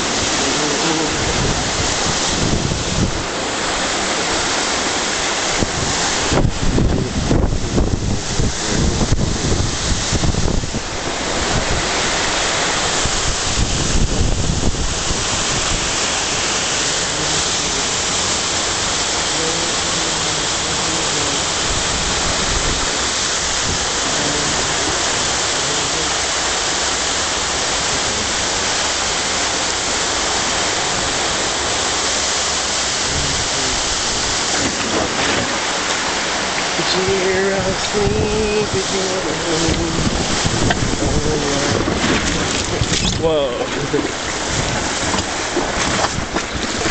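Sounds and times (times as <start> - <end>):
wind bumps on microphone: 0.0 - 4.6, 5.4 - 18.2, 33.0 - 36.3, 37.6 - 46.9
water cascading over wall: 0.0 - 46.9.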